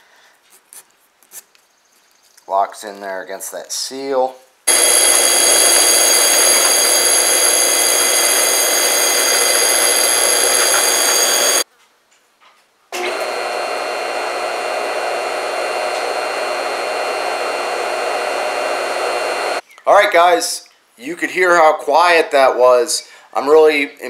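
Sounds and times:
motor humming steadily: 0:04.7 - 0:11.6, 0:13.0 - 0:19.6
pump motor whining: 0:04.7 - 0:11.6, 0:13.0 - 0:19.6.

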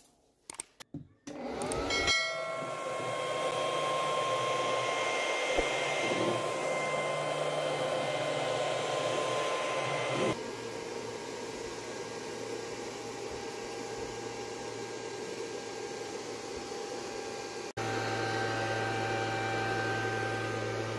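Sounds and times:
clicks: 0:00.4 - 0:01.9
vacuum motor whine: 0:01.3 - 0:20.9.

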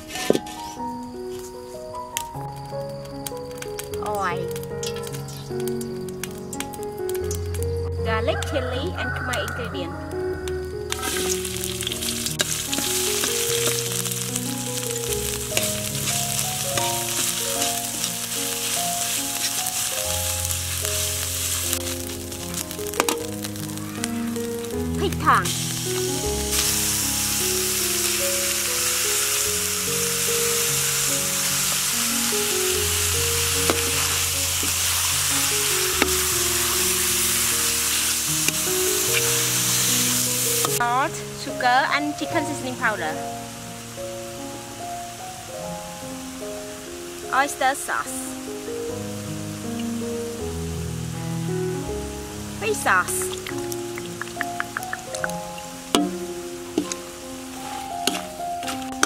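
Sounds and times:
background music: 0:00.0 - 0:59.0
food sizzling in hot oil: 0:00.0 - 0:59.0.

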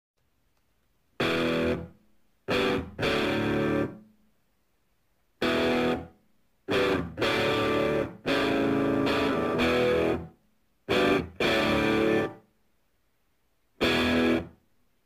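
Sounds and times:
guitar phrases: 0:01.2 - 0:04.0, 0:05.4 - 0:12.4, 0:13.8 - 0:14.6.

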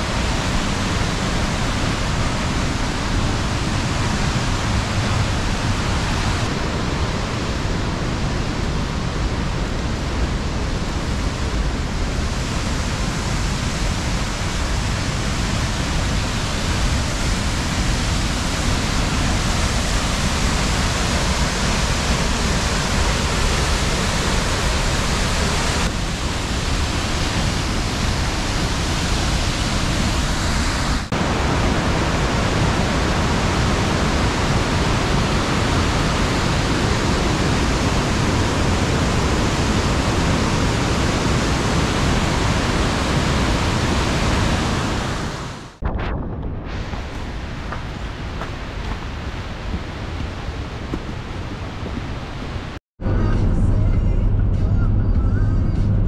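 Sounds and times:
waterfall rushing: 0:00.0 - 0:45.8.

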